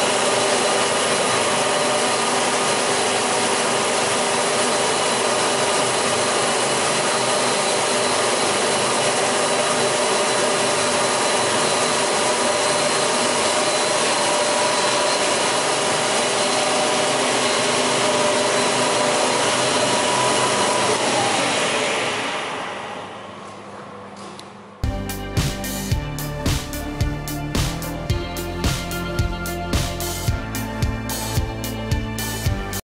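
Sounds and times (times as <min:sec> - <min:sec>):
panel saw whirring: 0:00.0 - 0:24.1
whining tones: 0:10.6 - 0:24.2.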